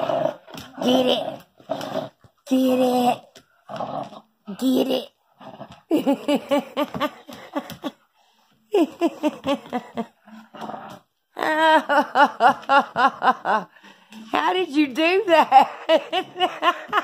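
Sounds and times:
woman laughing: 0:05.9 - 0:08.1, 0:08.7 - 0:10.5, 0:11.4 - 0:13.8, 0:15.1 - 0:17.0.

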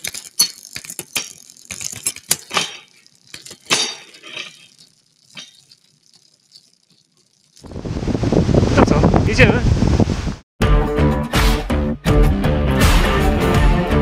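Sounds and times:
bicycle chain clicking and rattling: 0:00.0 - 0:07.8.

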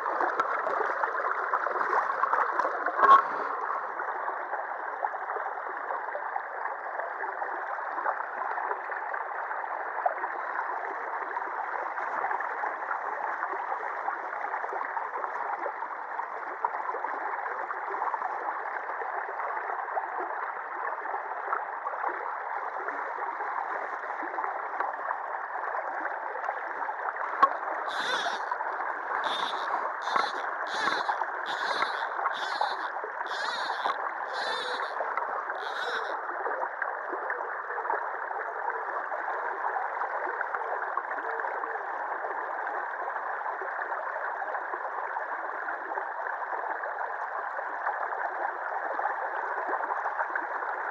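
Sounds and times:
short high-pitched rasps: 0:27.9 - 0:35.0, 0:35.6 - 0:36.2.

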